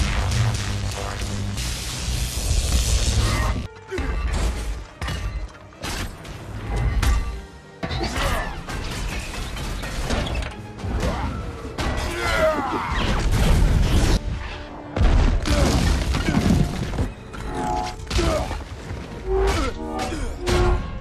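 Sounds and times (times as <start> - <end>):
action film music score: 0.0 - 21.0
crashes and smashing impacts: 15.0 - 17.1.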